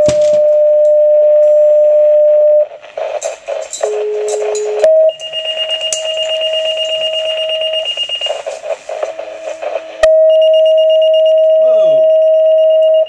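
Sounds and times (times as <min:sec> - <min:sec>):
two-tone paging tones: 0:03.8 - 0:09.2, 0:09.9 - 0:13.0.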